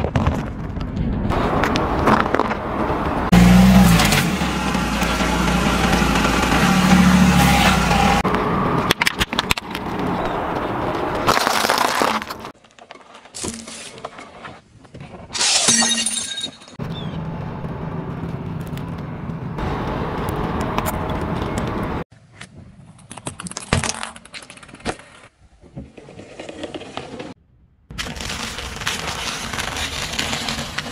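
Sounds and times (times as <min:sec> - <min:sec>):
car engine running low: 0:01.3 - 0:11.2
tyre crushing objects: 0:11.1 - 0:15.5
loud crunching of candy: 0:11.3 - 0:12.6, 0:28.0 - 0:30.9.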